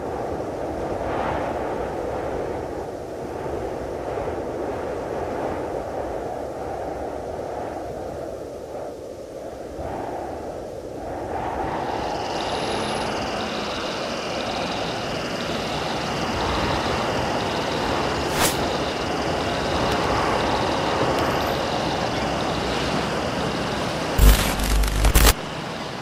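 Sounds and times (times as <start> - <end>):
high pulsing chirr: 11.7 - 26.0
distant traffic: 11.8 - 24.2
sharp click: 24.2 - 25.4.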